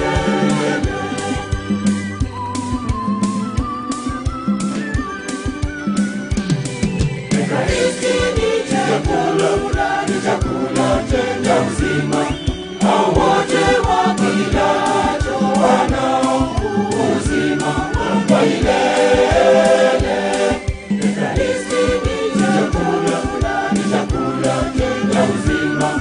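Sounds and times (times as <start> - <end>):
choir singing a hymn: 0.0 - 1.9, 7.3 - 26.0
steady beat: 5.7 - 26.0.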